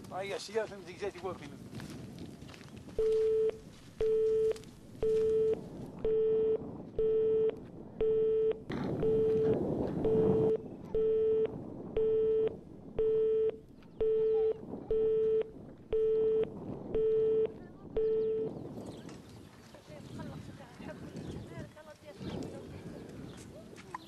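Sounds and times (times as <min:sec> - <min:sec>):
telephone busy tone: 0:03.0 - 0:18.6.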